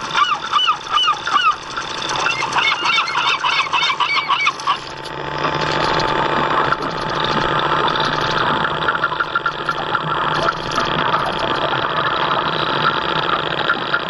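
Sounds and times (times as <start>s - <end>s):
model boat motor hum: 0.0s - 14.0s
water noise: 0.0s - 14.0s
geese honking: 0.1s - 4.9s.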